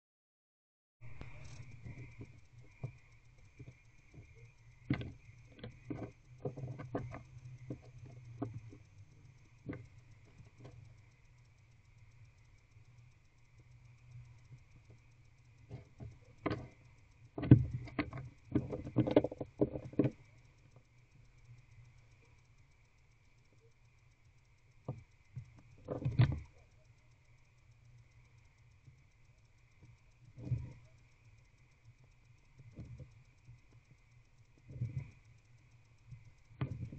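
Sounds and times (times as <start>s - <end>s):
steady low hum: 1.0s - 36.9s
owl tapping and scraping in nest box: 1.2s - 11.0s, 15.7s - 20.3s.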